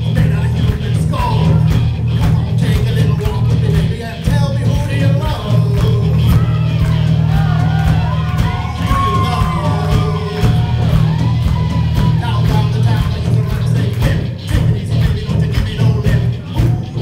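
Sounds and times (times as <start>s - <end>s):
man singing into microphone: 0.0s - 6.8s, 8.8s - 10.9s, 12.0s - 17.0s
live rock band playing: 0.0s - 17.0s
shouts and whoops: 6.2s - 12.5s.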